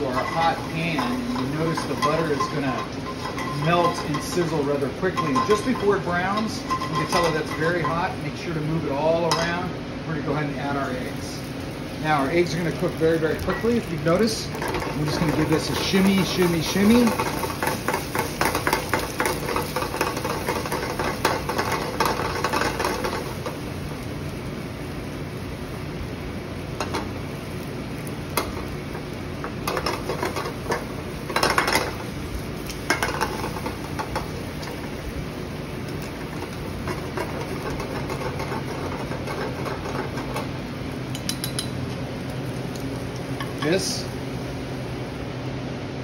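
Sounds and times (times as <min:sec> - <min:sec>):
metal pan rattling on grate: 0:00.0 - 0:07.9, 0:13.4 - 0:23.6, 0:29.6 - 0:32.1, 0:32.8 - 0:34.8, 0:36.0 - 0:40.5
mechanical kitchen hum: 0:00.0 - 0:46.0
chopsticks stirring eggs: 0:14.5 - 0:23.6, 0:29.6 - 0:32.0, 0:36.2 - 0:40.5.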